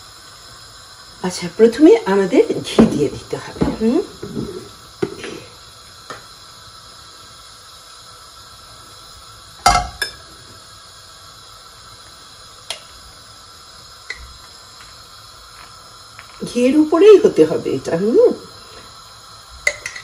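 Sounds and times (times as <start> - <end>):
steady faint hiss: 0.0 - 20.0
utensils clinking against pot: 9.7 - 10.2, 19.7 - 20.0.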